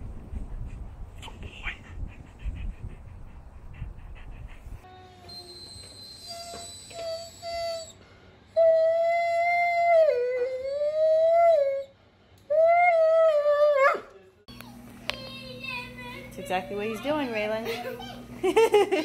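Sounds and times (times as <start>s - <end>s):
dog whimpering and whining: 4.8s - 8.0s, 8.6s - 11.9s.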